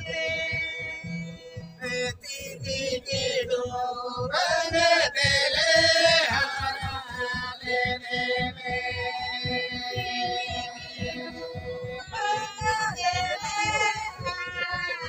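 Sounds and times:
voices singing folk song: 0.0 - 15.0
bowed folk fiddles: 4.5 - 15.0.

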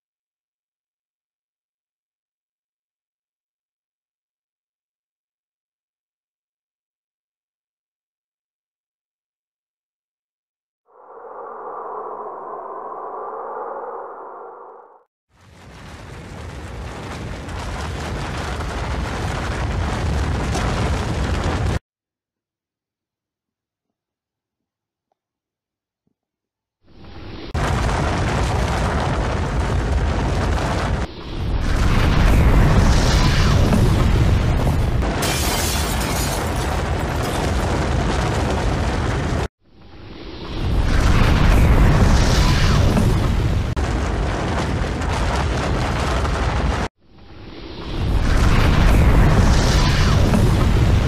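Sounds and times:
deep heavy avalanche rumble: 15.4 - 21.8, 27.0 - 39.5, 40.5 - 46.9, 47.5 - 51.0.

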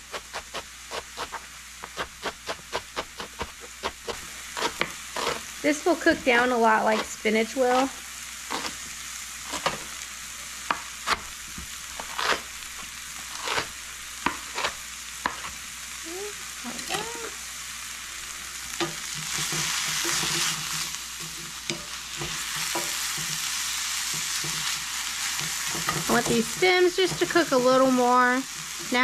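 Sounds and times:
vegetables sizzling in oil: 0.0 - 29.0.

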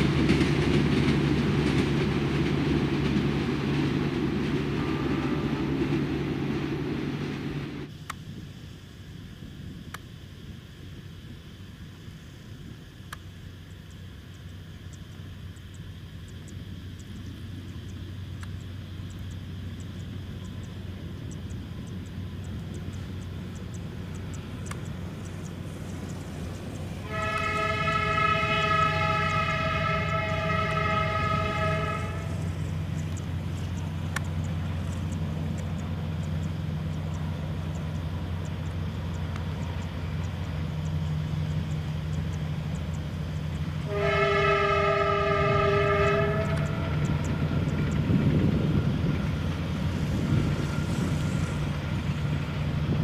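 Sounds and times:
locomotive engine drone: 0.0 - 53.0
multi-tone train horn: 4.6 - 6.5, 27.0 - 32.5, 43.8 - 52.0.

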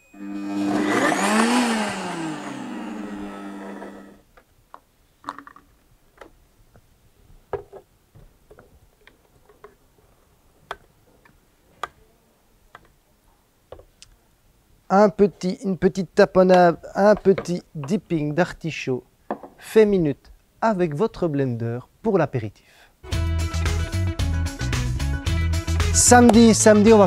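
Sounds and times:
blender motor running: 0.1 - 4.2.

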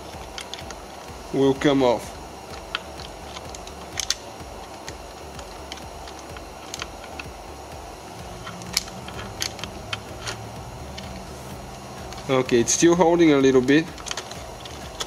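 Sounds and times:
socket wrench clicking: 2.4 - 7.4, 8.2 - 11.3, 13.6 - 15.0.

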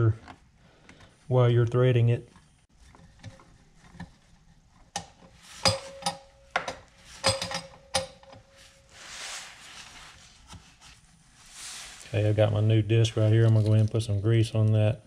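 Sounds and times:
wrench clinking on metal fittings: 5.6 - 8.4
soft rustle: 8.5 - 14.4.

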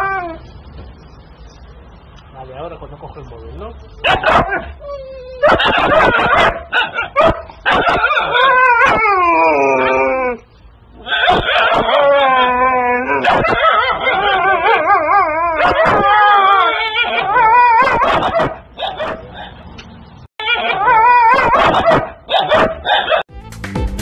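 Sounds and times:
sharp dog yips: 4.0 - 9.1, 11.0 - 12.2, 13.2 - 14.8, 15.6 - 19.6, 20.4 - 23.2
huskies howling: 4.2 - 10.4, 11.0 - 19.5, 20.4 - 23.2.

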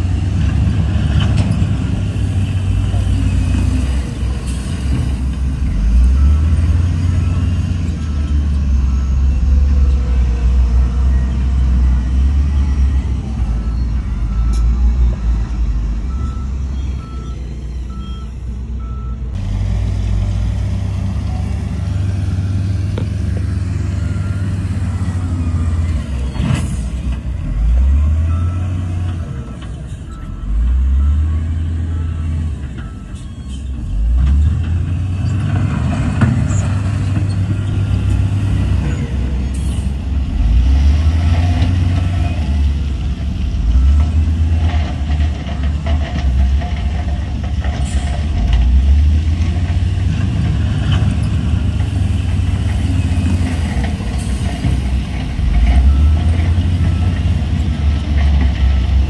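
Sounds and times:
heavy diesel machinery engine drone: 0.0 - 59.0
reversing alarm beeping: 5.8 - 19.3, 55.7 - 57.4.

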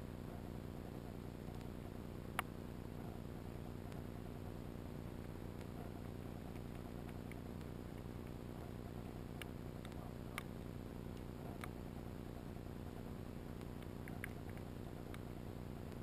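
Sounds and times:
sharp clicks: 5.2 - 11.8, 12.9 - 16.0.

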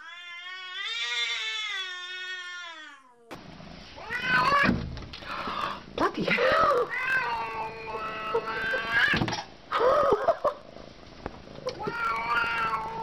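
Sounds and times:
cat yowling: 0.0 - 3.3, 4.0 - 4.7, 6.7 - 9.2, 11.7 - 13.0.

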